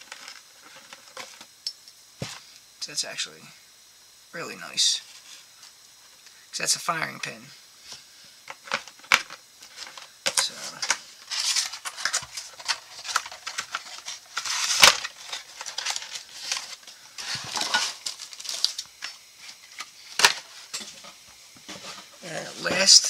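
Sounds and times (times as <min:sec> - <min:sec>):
packaging rustling: 0:08.8 - 0:20.7.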